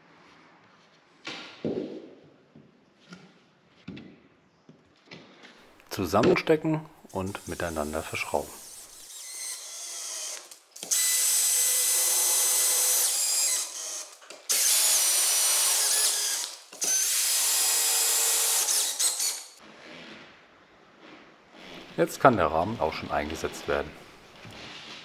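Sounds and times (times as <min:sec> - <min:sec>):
power screwdriver driving screws: 0:07.4 - 0:19.6.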